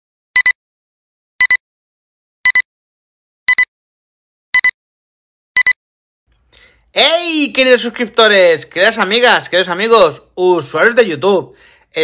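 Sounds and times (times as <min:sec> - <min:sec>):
electronic countdown beeps: 0:00.4 - 0:00.6, 0:01.4 - 0:01.6, 0:02.4 - 0:02.7, 0:03.5 - 0:03.7, 0:04.6 - 0:04.8, 0:05.6 - 0:05.8.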